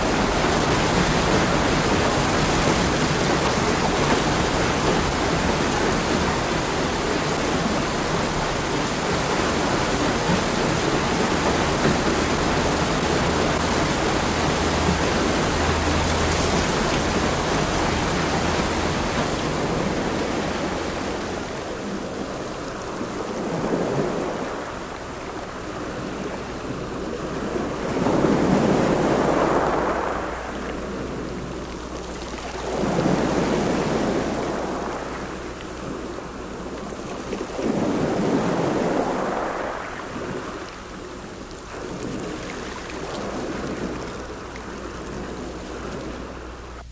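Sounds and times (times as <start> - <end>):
loud rushing noise: 28.0 - 31.5.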